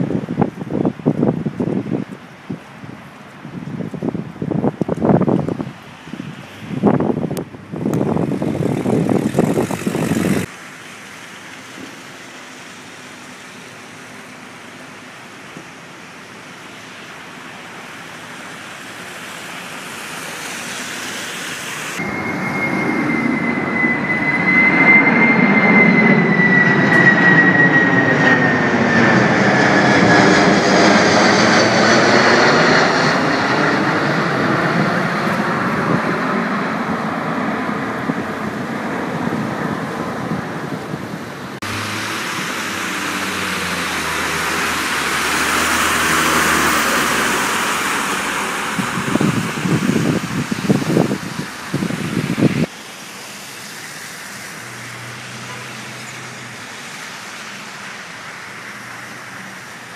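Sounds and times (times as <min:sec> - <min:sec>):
wind gust on microphone: 0:00.0 - 0:10.5, 0:21.9 - 0:52.7
high engine whine: 0:04.8 - 0:59.9
jet aircraft passing overhead: 0:05.0 - 0:59.9.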